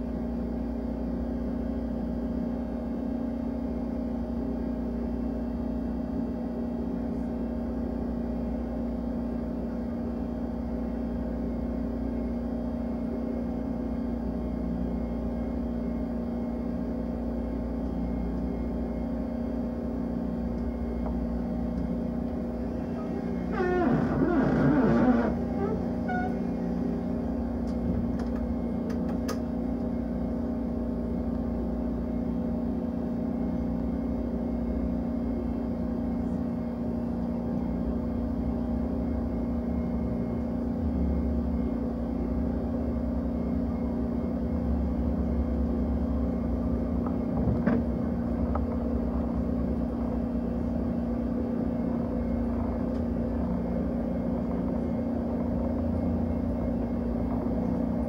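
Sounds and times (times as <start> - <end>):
constant low hum: 0.0 - 58.0
train rumbling on track: 44.6 - 58.0.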